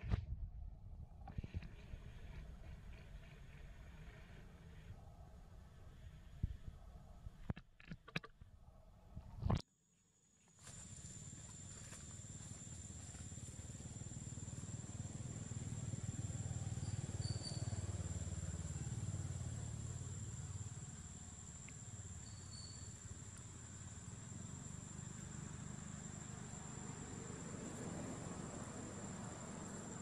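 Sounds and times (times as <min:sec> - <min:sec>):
passing vehicle engine hum: 0:13.0 - 0:22.0, 0:24.1 - 0:30.0.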